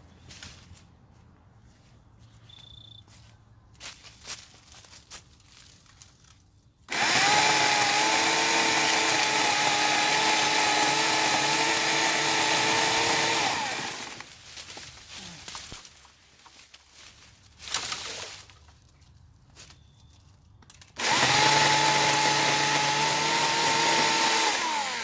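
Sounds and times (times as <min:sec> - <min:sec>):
electric chainsaw cutting wood: 0:06.9 - 0:14.3, 0:21.0 - 0:25.0.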